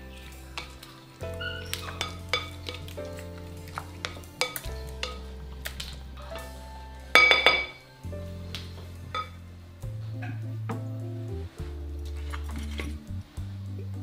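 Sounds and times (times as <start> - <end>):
background music with bass notes: 0.0 - 14.0
spoon clinking in glass bowl: 1.5 - 2.9, 3.7 - 5.3, 7.2 - 7.8, 9.1 - 9.4.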